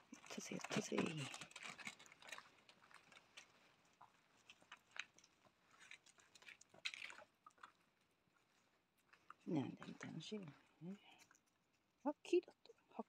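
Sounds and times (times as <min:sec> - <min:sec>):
puppy gnawing on wood: 0:00.1 - 0:10.0.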